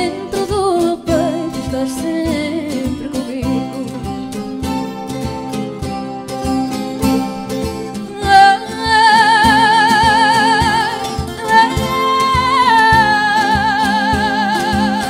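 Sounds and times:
woman singing with vibrato: 0:00.0 - 0:04.5, 0:08.0 - 0:15.0
plucked strings: 0:00.0 - 0:15.0.

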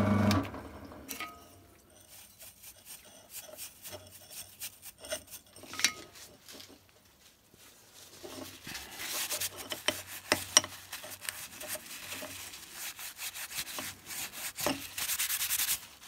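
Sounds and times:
paper towel rubbing on steel: 0:01.9 - 0:05.6, 0:08.1 - 0:16.0.

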